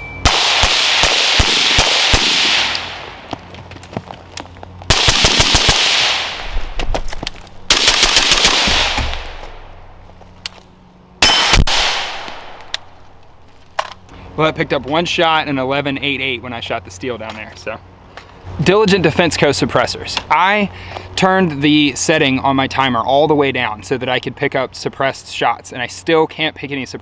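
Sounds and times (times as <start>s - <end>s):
bullet hitting steel target: 7.4s - 9.8s, 11.2s - 12.9s
suppressed rifle shots: 7.7s - 9.6s, 11.2s - 12.8s.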